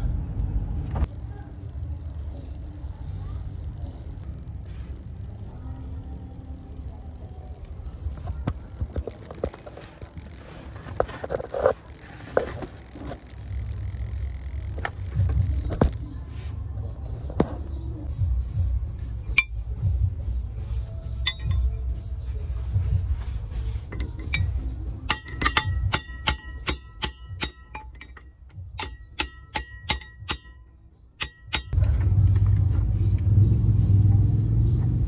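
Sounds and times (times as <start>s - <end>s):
steady low rumble: 0.0s - 35.0s
metal wrench clinking on steel: 19.3s - 19.6s, 21.2s - 21.8s, 23.8s - 31.8s.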